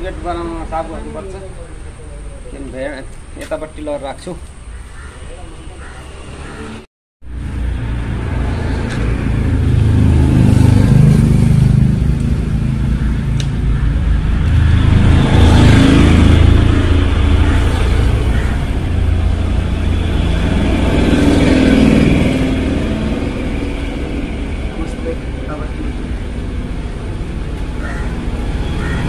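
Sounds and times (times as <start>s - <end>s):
vehicle engine running: 7.3s - 29.0s.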